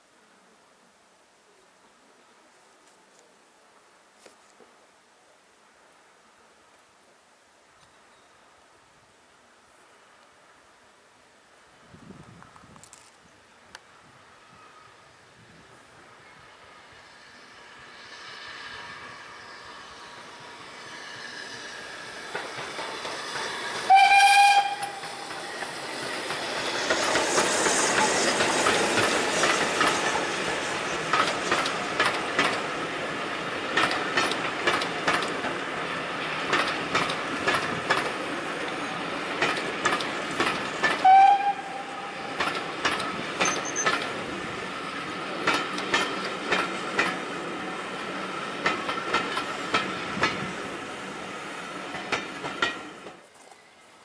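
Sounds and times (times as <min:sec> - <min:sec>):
locomotive running noise: 0:15.6 - 0:53.9
wheels clattering over rail joints: 0:22.0 - 0:44.4, 0:45.0 - 0:50.6, 0:51.8 - 0:53.4
steam whistle blast: 0:23.9 - 0:25.2, 0:41.0 - 0:42.4.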